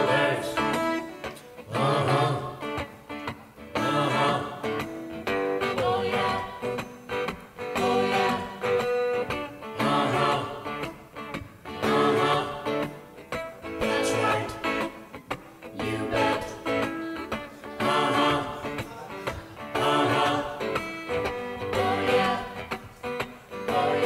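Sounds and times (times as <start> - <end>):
group singing call-and-response: 0.0 - 24.0
guitar: 0.0 - 24.0.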